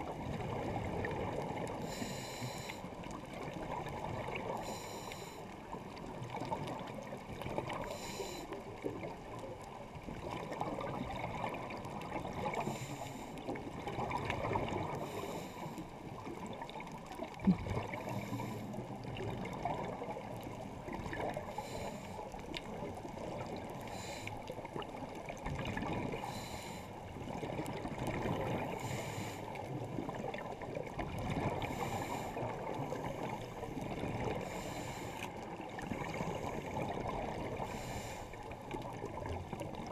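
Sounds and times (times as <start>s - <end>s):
scuba regulator breathing underwater: 1.8s - 3.0s, 4.4s - 5.6s, 7.7s - 8.7s, 12.4s - 13.6s, 14.7s - 16.0s, 17.8s - 18.9s, 21.4s - 22.4s, 23.6s - 24.5s, 26.1s - 27.0s, 28.4s - 29.8s, 31.4s - 38.4s
bubbling: 16.1s - 21.6s.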